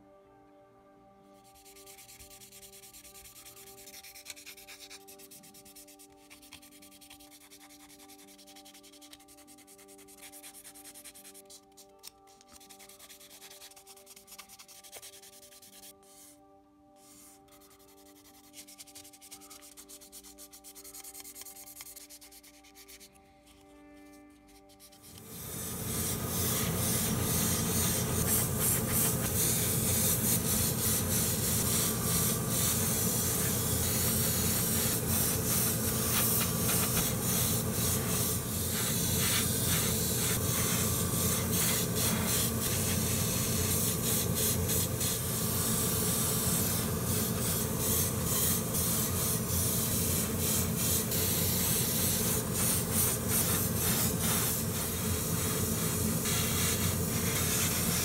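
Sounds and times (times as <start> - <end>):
airbrush spraying hiss: 25.0 - 58.0.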